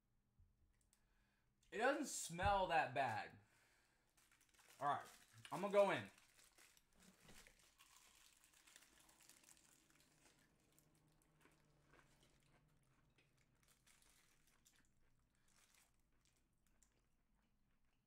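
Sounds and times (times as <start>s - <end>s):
paper wrapper crinkling: 4.2s - 12.5s, 13.3s - 16.9s
faint chewing: 6.4s - 18.0s.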